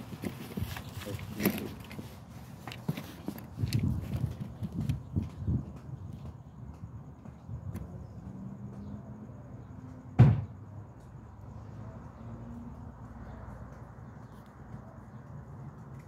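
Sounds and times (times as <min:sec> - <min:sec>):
sharp knock: 0:10.2 - 0:10.5.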